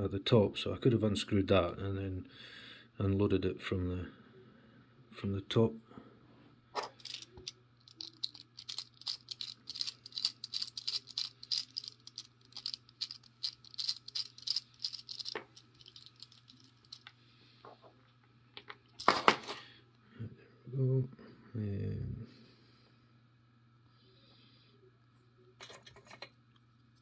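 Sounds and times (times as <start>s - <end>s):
lock cylinder clicking and clinking: 6.8s - 17.1s
metal clatter: 6.8s - 17.1s.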